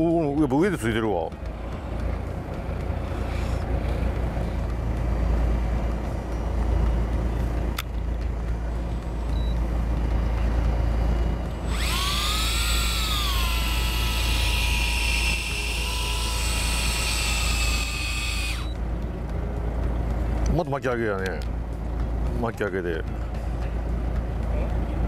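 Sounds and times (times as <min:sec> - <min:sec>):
boat engine humming: 0:00.0 - 0:25.0
electric fishing reel motor whining: 0:11.6 - 0:18.8.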